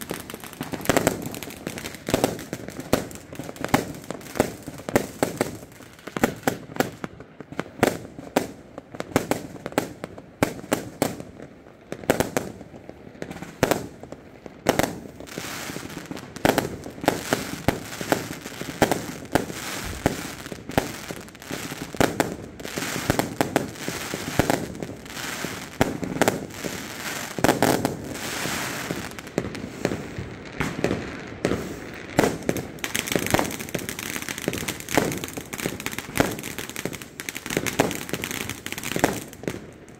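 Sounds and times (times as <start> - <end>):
fireworks bangs: 0.0 - 9.4, 12.0 - 39.9.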